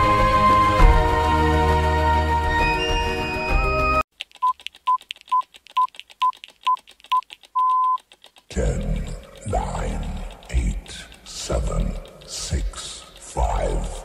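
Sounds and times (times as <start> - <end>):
synth music: 0.0 - 4.0
faint ticks: 4.2 - 14.0
timer electronic beeps: 7.1 - 8.0.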